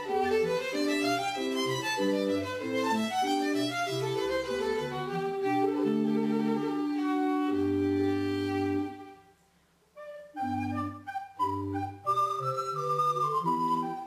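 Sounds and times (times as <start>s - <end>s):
violin: 0.0s - 9.3s.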